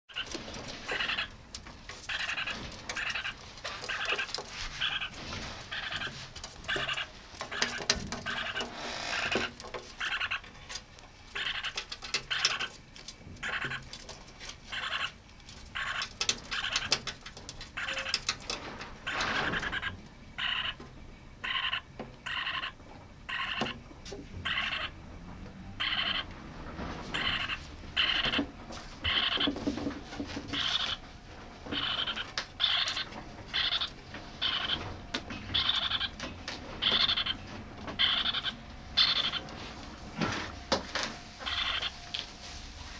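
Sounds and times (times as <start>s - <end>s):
parakeet chick raspy calls: 0.1s - 1.4s, 2.1s - 10.5s, 11.3s - 12.7s, 13.4s - 13.9s, 14.7s - 17.0s, 17.8s - 18.3s, 19.0s - 20.8s, 21.4s - 23.8s, 24.4s - 25.0s, 25.8s - 26.3s, 27.1s - 28.4s, 29.0s - 29.6s, 30.6s - 31.0s, 31.7s - 34.8s, 35.4s - 36.2s, 36.8s - 39.5s, 41.4s - 42.0s.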